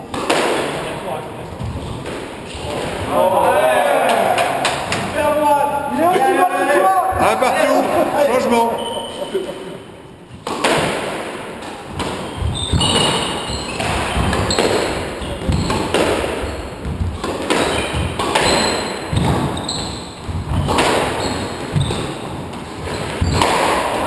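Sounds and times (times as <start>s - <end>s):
squash ball hits: 0.0s - 1.0s, 10.4s - 24.0s
shoes squeaking on wooden floor: 1.5s - 2.9s, 6.5s - 10.6s, 11.6s - 24.0s.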